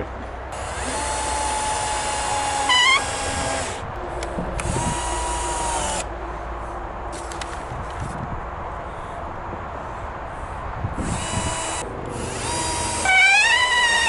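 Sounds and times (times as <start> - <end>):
cordless drill driving screws: 0.5 - 3.8, 4.6 - 6.1, 11.0 - 14.0
drill squeal: 2.5 - 3.8, 11.0 - 14.0.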